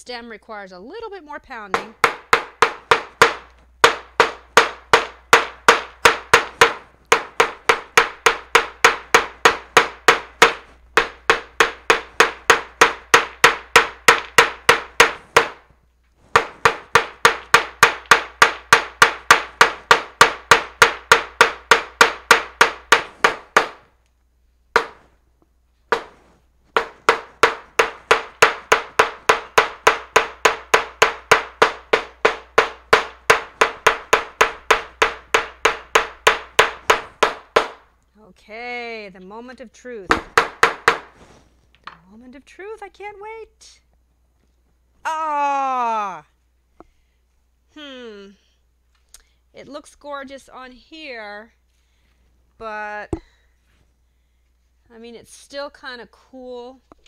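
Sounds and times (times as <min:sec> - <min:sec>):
small hammer pounding: 0:01.6 - 0:24.0, 0:24.7 - 0:25.2, 0:25.9 - 0:38.0, 0:40.0 - 0:41.2, 0:53.1 - 0:53.4.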